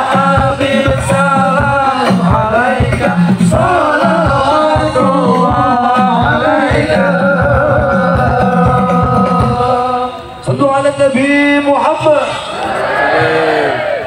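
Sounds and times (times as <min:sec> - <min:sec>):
steady drum beat: 0:00.0 - 0:10.0
men singing: 0:00.0 - 0:10.4
keyboard: 0:00.0 - 0:14.0.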